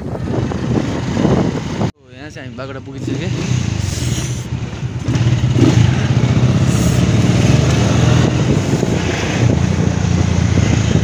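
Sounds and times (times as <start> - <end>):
motorcycle engine running: 2.9 - 11.0.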